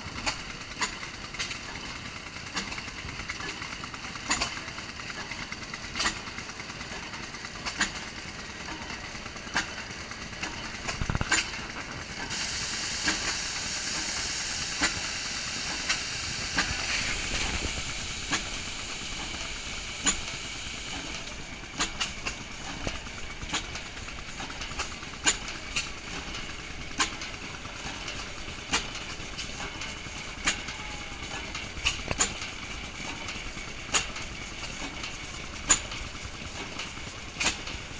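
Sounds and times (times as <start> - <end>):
engine exhaust beats: 0.0 - 37.9
hiss: 12.1 - 22.1.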